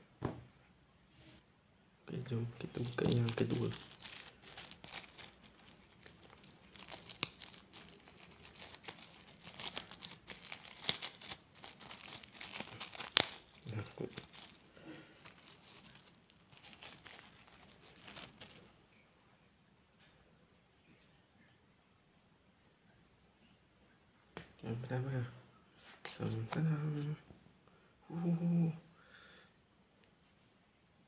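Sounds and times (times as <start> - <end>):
plastic packet crinkling: 2.1 - 18.8
sharp plastic crack: 2.8 - 18.6.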